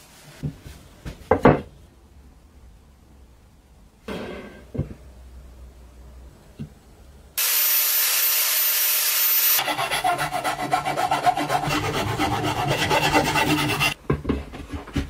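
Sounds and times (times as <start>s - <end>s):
steady hiss: 7.4s - 9.6s
file rasping on wood: 9.6s - 14.0s.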